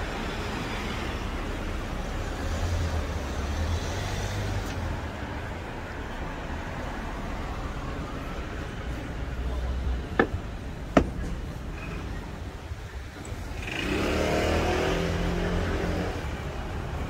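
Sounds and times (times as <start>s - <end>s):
steady traffic noise: 0.0s - 17.0s
vehicle passing by: 13.4s - 17.0s.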